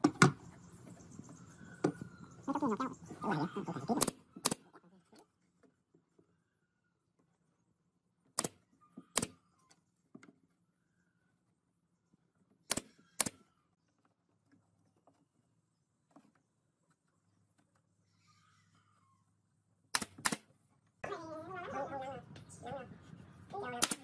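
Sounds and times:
pneumatic nailer firing: 0:19.9 - 0:20.4.

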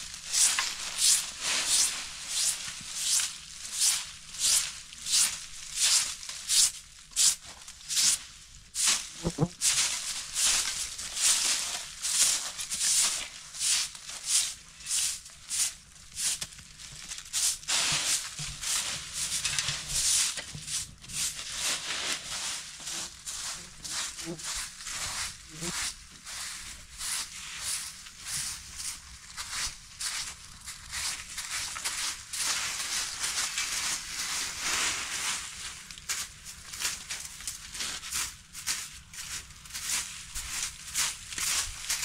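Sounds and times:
broom sweeping: 0:00.0 - 0:16.4, 0:17.2 - 0:42.0
dry leaves crackling: 0:00.0 - 0:42.0.

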